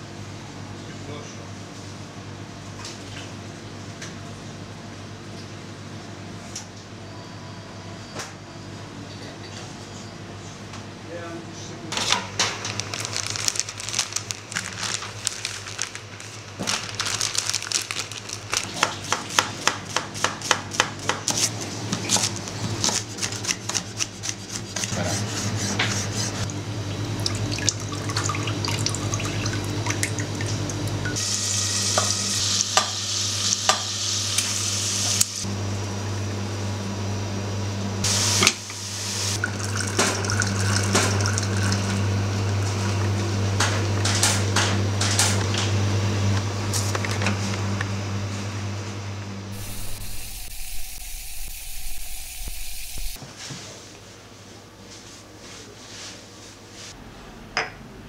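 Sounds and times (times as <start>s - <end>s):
knife chopping on board: 19.0s - 21.5s
frying hiss: 31.2s - 35.4s, 49.6s - 53.2s
low hum: 49.5s - 53.2s.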